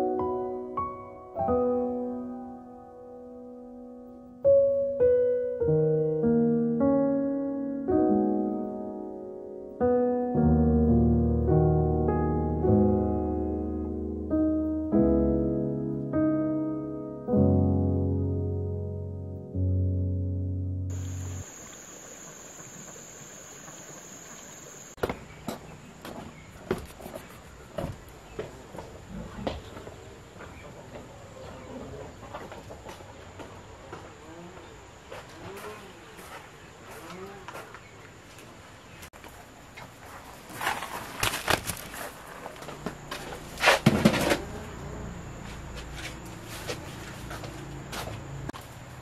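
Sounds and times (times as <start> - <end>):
high-pitched insect drone: 20.9 - 25.0
basket rustling and knocking: 40.3 - 44.5
basket clattering: 40.4 - 44.5.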